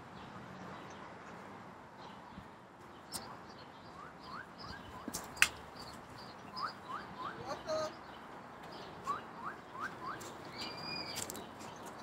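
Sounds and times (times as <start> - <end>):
bird chirping: 2.0 - 12.0.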